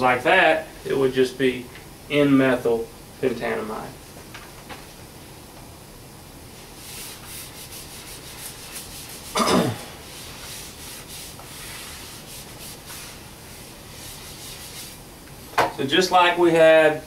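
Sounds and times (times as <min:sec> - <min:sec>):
eraser rubbing on whiteboard: 0:06.7 - 0:09.4, 0:10.0 - 0:15.0.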